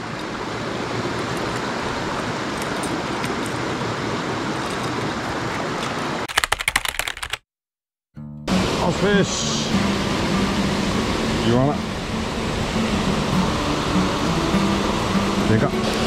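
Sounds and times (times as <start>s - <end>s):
stream water rushing: 0.0s - 6.3s, 8.5s - 16.0s
rapid clicks: 6.2s - 7.4s.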